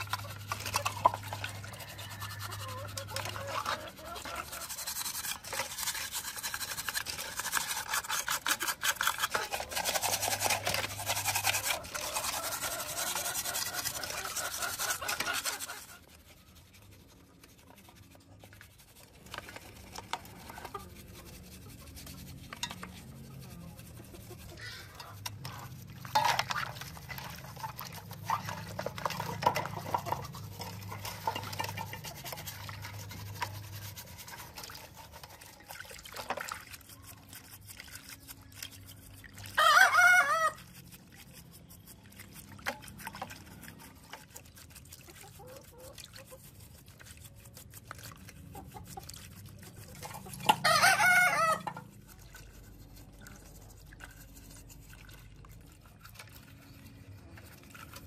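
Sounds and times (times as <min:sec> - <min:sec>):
brush scrubbing in water: 0:00.0 - 0:58.0
rooster crowing: 0:01.3 - 0:03.7, 0:39.6 - 0:40.6, 0:50.6 - 0:51.7.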